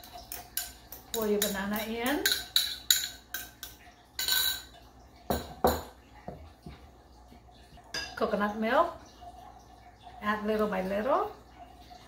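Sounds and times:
spoon ticking in glass bowl: 0:00.0 - 0:04.7.

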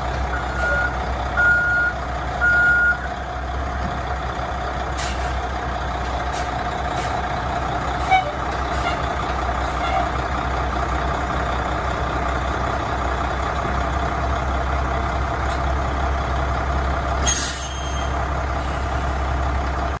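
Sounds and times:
diesel truck engine idling: 0:00.0 - 0:20.0.

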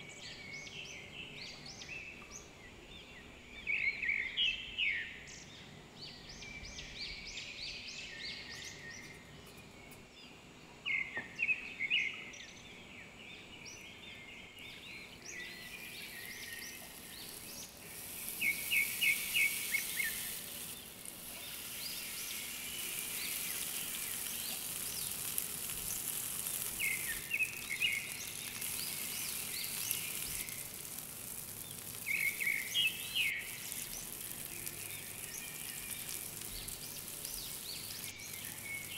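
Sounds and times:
birds chirping: 0:00.0 - 0:38.9
meat sizzling on a grill pan: 0:15.4 - 0:38.9.

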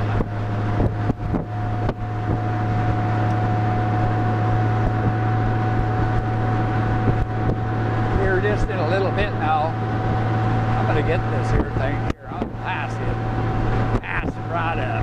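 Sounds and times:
motorcycle engine drone: 0:00.0 - 0:15.0
thin steady whine: 0:00.0 - 0:15.0
wind rushing over microphone: 0:00.0 - 0:15.0.

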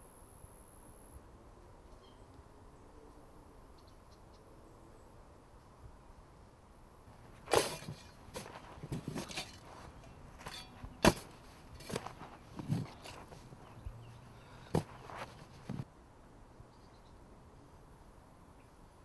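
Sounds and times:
shovel chopping and scraping soil: 0:07.2 - 0:15.9.

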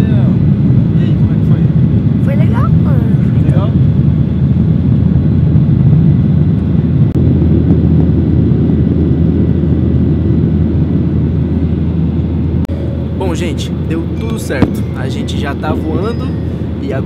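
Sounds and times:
jet engine cabin rumble: 0:00.0 - 0:17.0
faint high whine: 0:06.6 - 0:17.0.

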